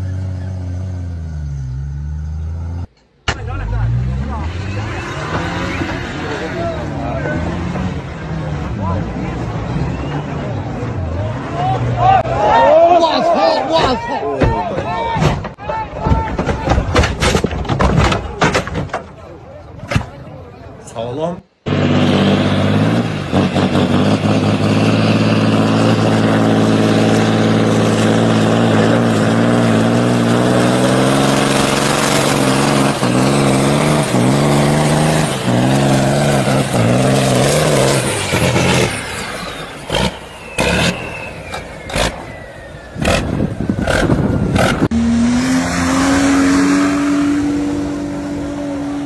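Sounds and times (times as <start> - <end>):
truck diesel engine revving: 0.0 - 2.9, 3.5 - 12.0, 21.6 - 49.0
suv engine high revs: 3.6 - 12.2, 21.7 - 49.0.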